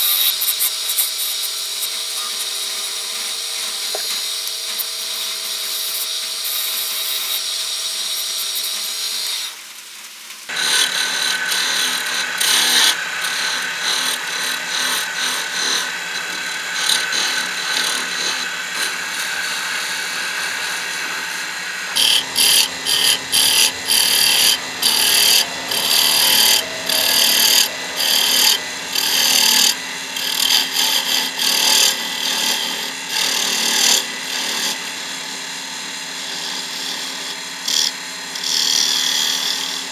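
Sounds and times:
tool cutting wood on a lathe: 0.0 - 9.7, 10.5 - 39.9
lathe humming: 10.5 - 39.9.

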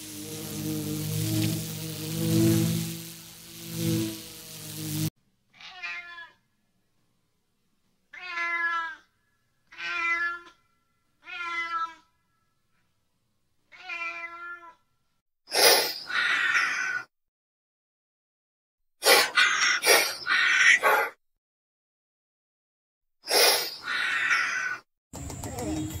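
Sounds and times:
cat meowing: 5.5 - 6.4, 8.1 - 9.1, 9.7 - 10.6, 11.2 - 12.1, 13.7 - 14.8, 16.1 - 17.1, 23.8 - 24.8.

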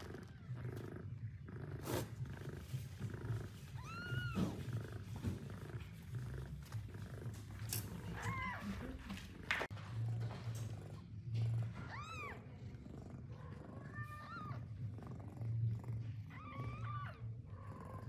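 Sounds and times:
cat purring: 0.0 - 18.0
kittens mewing: 1.8 - 9.2.

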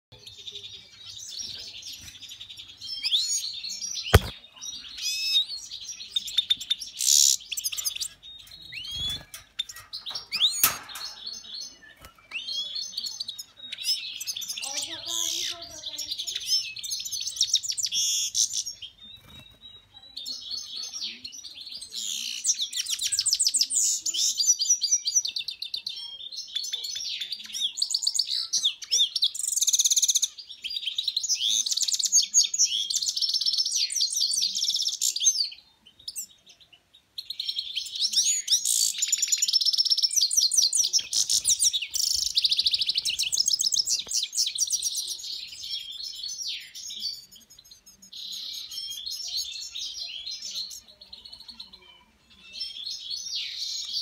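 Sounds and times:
finch twittering and trilling: 0.2 - 54.0.

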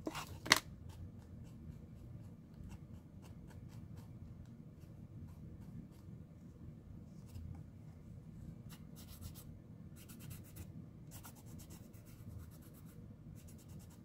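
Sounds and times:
soft handling noise: 0.0 - 0.7, 5.9 - 8.6.

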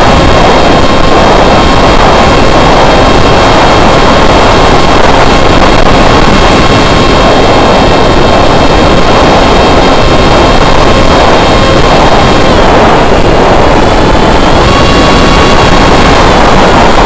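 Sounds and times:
electric motor and propeller whine: 0.0 - 17.0
wind rushing over microphone: 0.0 - 17.0.

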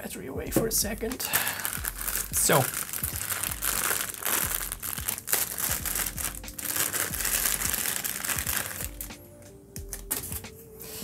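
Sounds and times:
packaging crinkling: 1.2 - 9.1.

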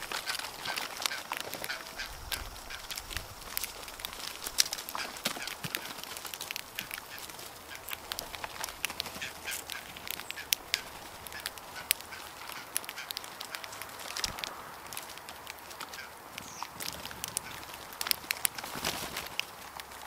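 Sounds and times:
grackles calling: 0.0 - 17.9.

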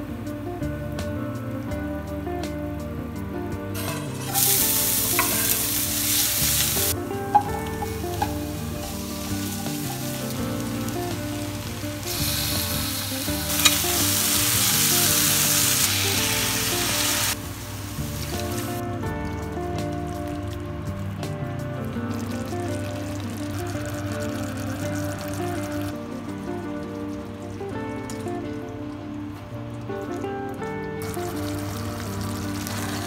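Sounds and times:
soft background music: 0.0 - 33.0
vegetables sizzling in oil: 3.8 - 18.8, 22.1 - 27.4, 31.0 - 33.0
utensil clicking against pan: 3.9 - 10.3, 12.0 - 16.2.

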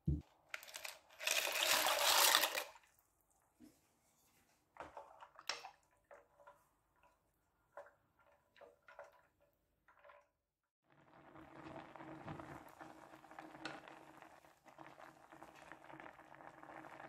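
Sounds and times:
wooden spoon stirring in saucepan: 3.5 - 10.3.

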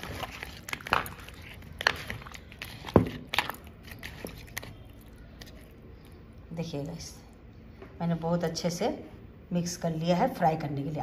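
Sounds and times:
wet squelches of fish mixed by hand: 0.0 - 6.3.

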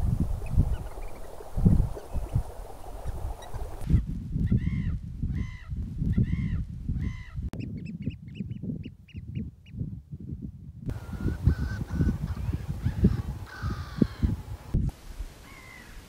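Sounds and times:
birds calling: 0.0 - 4.0, 4.6 - 9.4, 10.9 - 14.5, 15.4 - 16.0
wind rumble on microphone: 0.0 - 16.0
high piping bird notes: 10.9 - 14.5.

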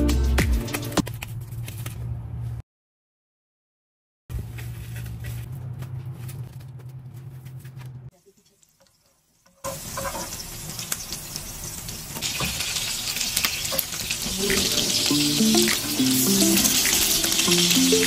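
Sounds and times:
music: 0.0 - 1.0, 14.3 - 18.0
patties sizzling in oil: 8.1 - 18.0.

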